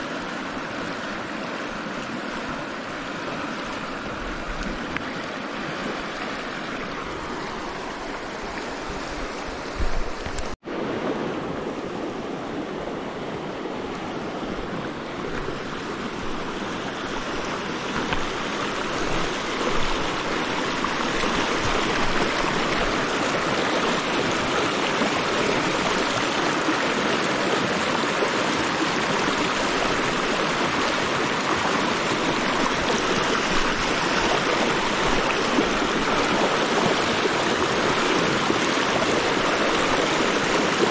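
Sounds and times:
river water rushing over rocks: 0.0 - 40.9.

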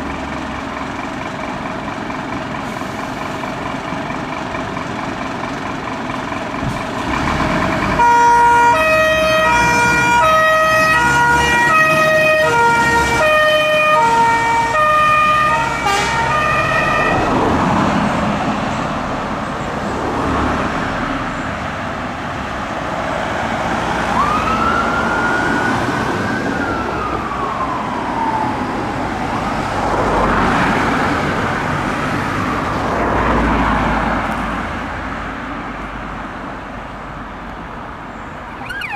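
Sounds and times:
diesel engine pulling away: 0.0 - 38.9
road noise: 0.0 - 38.9
two-tone fire engine siren: 7.9 - 17.8, 23.9 - 30.2, 38.4 - 38.9
distant rising and falling siren: 7.9 - 18.3, 23.5 - 31.2, 31.9 - 34.1, 38.4 - 38.9.

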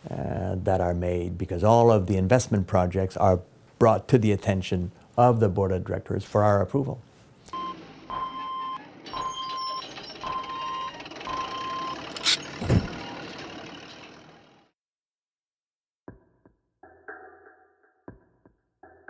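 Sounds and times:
vehicle reversing alarm beeping: 7.6 - 14.2
engine noise: 8.8 - 14.7
sharp click: 12.1 - 12.4.

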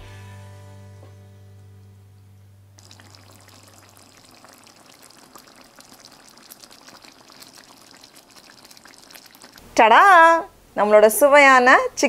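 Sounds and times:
curry bubbling in a pan: 2.8 - 9.7.

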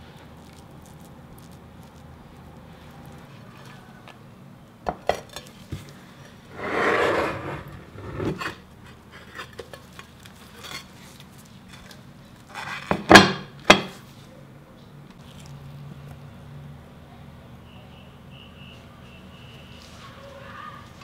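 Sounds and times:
scraping rub: 6.5 - 8.6.

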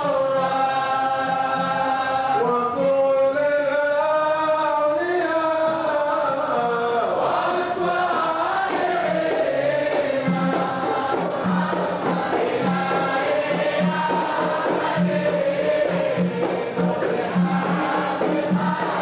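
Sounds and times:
group of voices chanting: 7.2 - 19.0.

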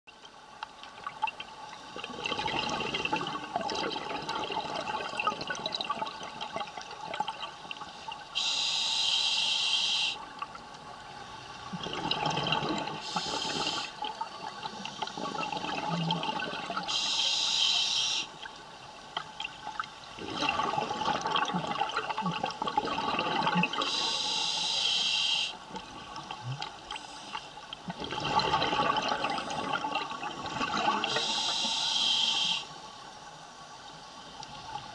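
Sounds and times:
exhaled air bubbling underwater: 0.8 - 9.0, 9.8 - 32.7
regulator hissing inhales: 8.4 - 10.2, 13.0 - 14.0, 16.9 - 18.3, 23.8 - 25.6, 31.1 - 32.8.

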